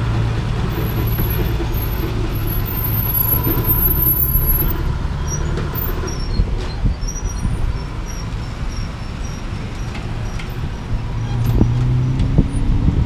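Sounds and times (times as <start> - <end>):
cars moving slowly: 0.0 - 13.0.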